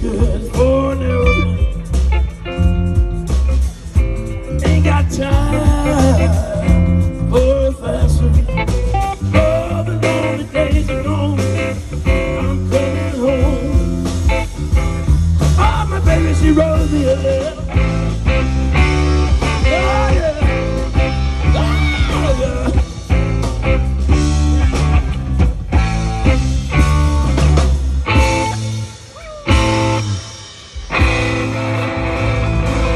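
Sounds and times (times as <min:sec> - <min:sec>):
rock band playing: 0:00.0 - 0:32.9.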